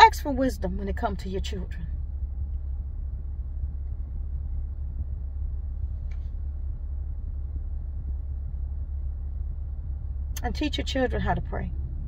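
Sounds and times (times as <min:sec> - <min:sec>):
car cabin rumble: 0:00.0 - 0:12.0.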